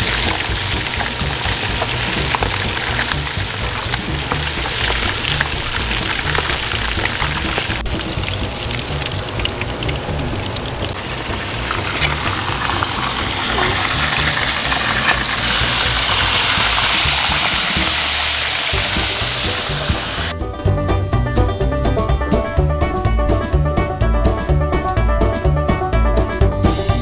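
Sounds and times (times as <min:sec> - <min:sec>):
fish deep-frying sizzle: 0:00.0 - 0:20.3
background music: 0:00.0 - 0:27.0
banjo music: 0:00.0 - 0:27.0.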